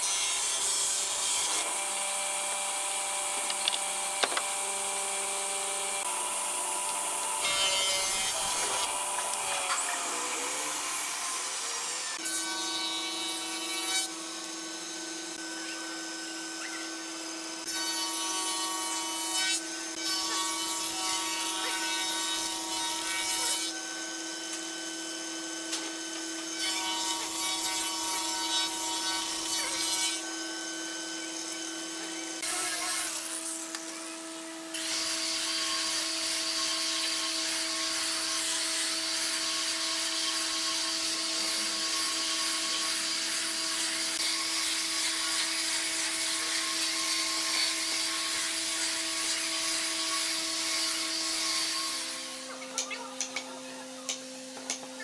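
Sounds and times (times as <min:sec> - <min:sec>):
woodworking machine cutting wood: 0:00.0 - 0:55.0
electric sander running: 0:01.6 - 0:23.1.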